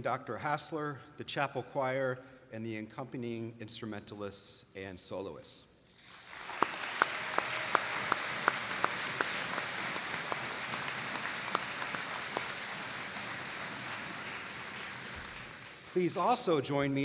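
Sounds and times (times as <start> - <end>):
audience applauding: 6.0 - 17.0
sharp nearby claps: 6.3 - 16.6.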